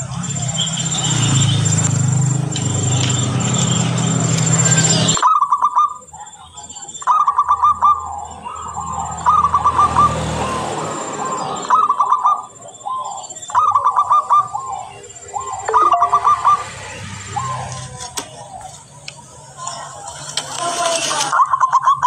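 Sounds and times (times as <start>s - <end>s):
dove cooing: 7.0s - 18.7s.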